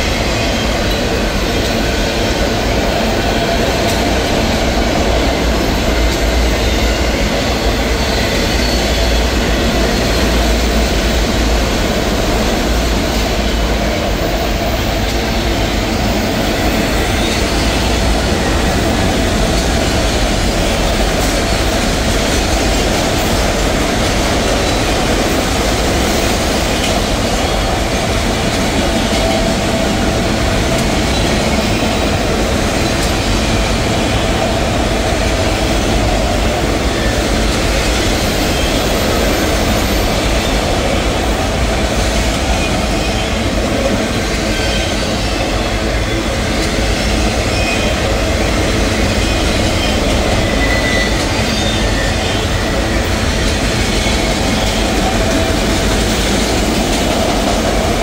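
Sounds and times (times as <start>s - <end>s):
freight train rumbling past: 0.0s - 58.0s
wheels clattering on rail: 0.0s - 58.0s
faint high wheel squeal: 6.2s - 10.8s, 44.3s - 54.9s.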